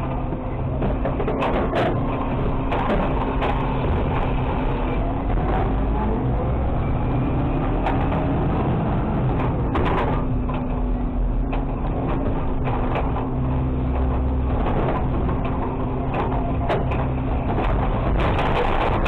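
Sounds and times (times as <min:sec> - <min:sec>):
diesel engine humming: 0:00.0 - 0:19.0.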